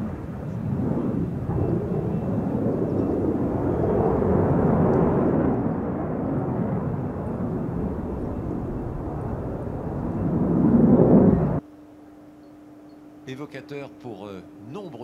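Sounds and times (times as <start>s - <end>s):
fighter jet afterburner roar: 0.0s - 11.6s.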